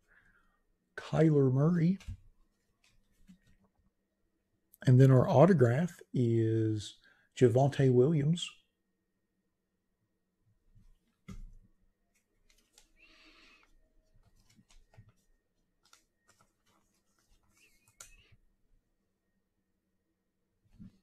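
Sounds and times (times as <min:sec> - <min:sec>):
papery rustle: 0:14.0 - 0:18.3.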